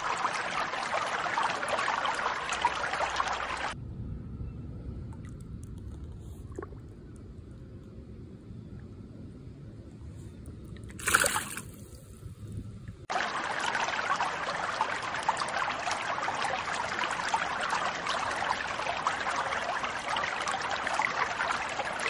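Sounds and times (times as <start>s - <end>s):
low rumble: 3.8s - 10.9s
water splash: 10.9s - 12.0s.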